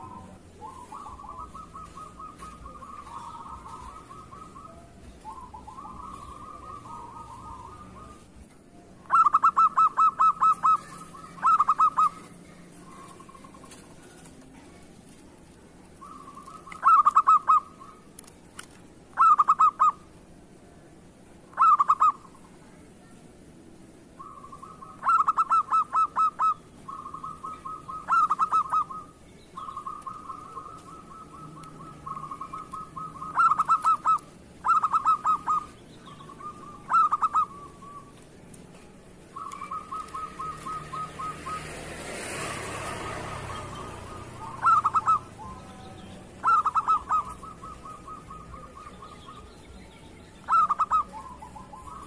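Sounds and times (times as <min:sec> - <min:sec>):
dove cooing: 0:00.0 - 0:15.2, 0:15.8 - 0:20.2, 0:21.5 - 0:22.5, 0:24.2 - 0:49.7, 0:50.4 - 0:52.0
faint rush of noise: 0:00.0 - 0:52.0.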